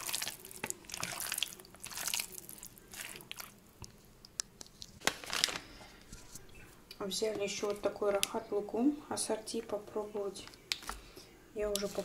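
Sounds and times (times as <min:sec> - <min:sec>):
wet squelching of raw chicken: 0:00.0 - 0:03.6.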